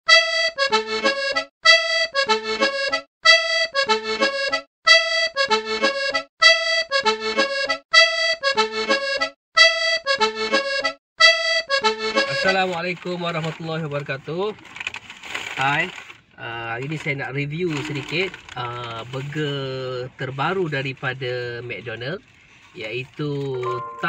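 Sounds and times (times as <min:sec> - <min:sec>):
looped instrumental music phrase: 0:23.6 - 0:24.0.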